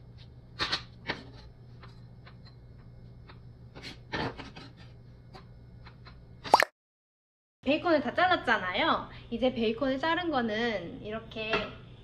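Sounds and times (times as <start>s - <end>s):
knife scraping cutting board: 3.7s - 5.4s.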